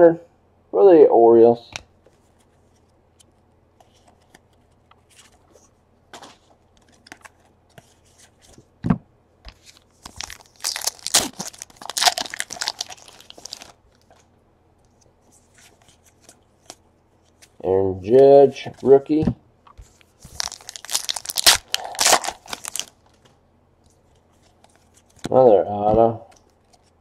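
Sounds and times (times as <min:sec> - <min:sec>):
foil pack tearing and crinkling: 0:10.1 - 0:13.8, 0:20.3 - 0:23.0.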